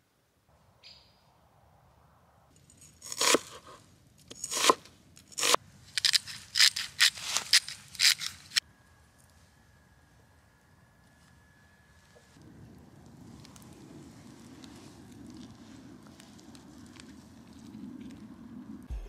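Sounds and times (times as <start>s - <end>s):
knife slicing onion on wooden board: 3.0s - 8.6s.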